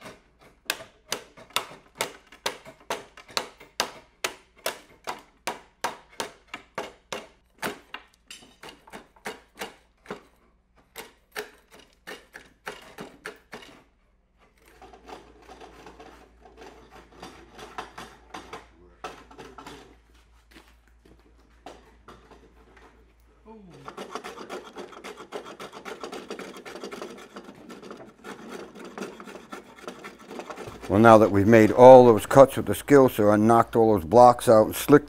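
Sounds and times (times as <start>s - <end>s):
chisel cracking wood: 0.1s - 10.3s, 10.9s - 13.8s
chisel scraping wood: 8.6s - 20.2s, 21.6s - 33.0s.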